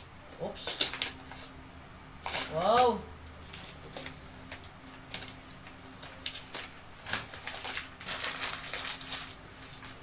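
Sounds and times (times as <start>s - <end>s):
plastic wrapping rustling: 5.0s - 10.0s.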